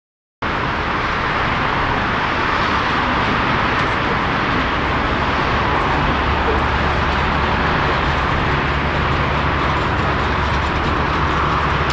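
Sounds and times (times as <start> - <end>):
jet engines rushing: 0.5 - 11.9.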